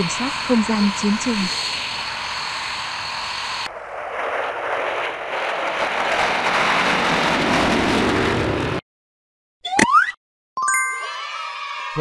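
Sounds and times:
fighter jet engine roar: 0.0 - 8.8.

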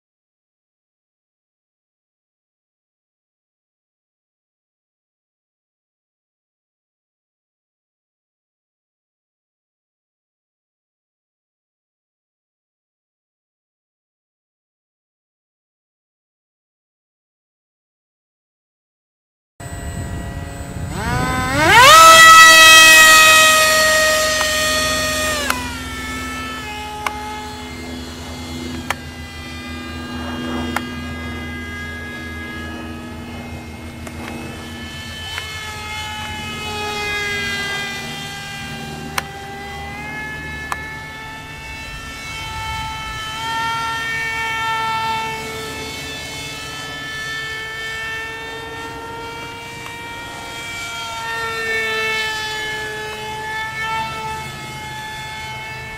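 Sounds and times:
electric motor propeller whine: 19.6 - 55.9.

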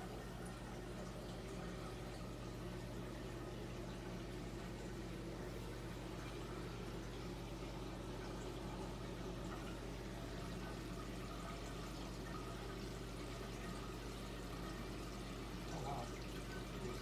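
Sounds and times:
low steady hum: 0.0 - 17.0
water trickling and splashing: 0.0 - 17.0.

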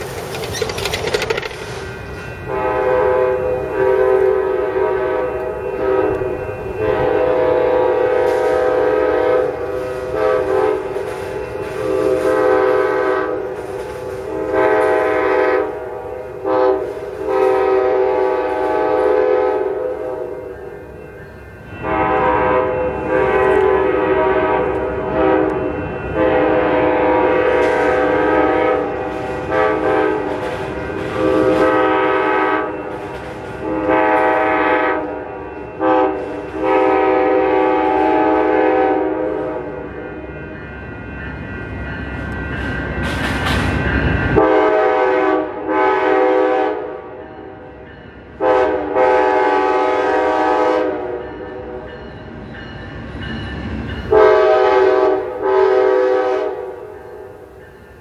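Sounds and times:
diesel locomotive rumble: 0.0 - 39.6
train air horn blasts: 2.4 - 20.9, 21.8 - 40.2, 44.4 - 51.9, 54.1 - 57.7.

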